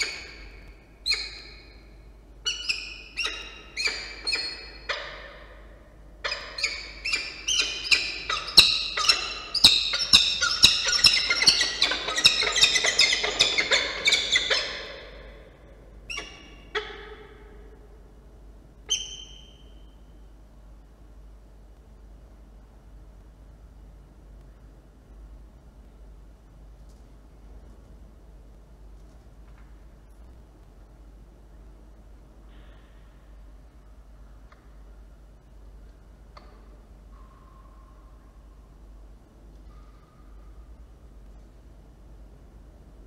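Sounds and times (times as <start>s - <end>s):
falcon calling: 0.0s - 1.8s, 2.4s - 17.6s.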